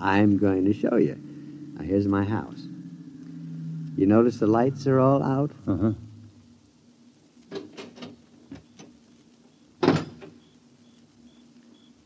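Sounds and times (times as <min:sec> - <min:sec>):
crickets chirping: 0:00.0 - 0:12.0
faint steady hum: 0:00.0 - 0:12.0
car door slamming: 0:09.8 - 0:10.4.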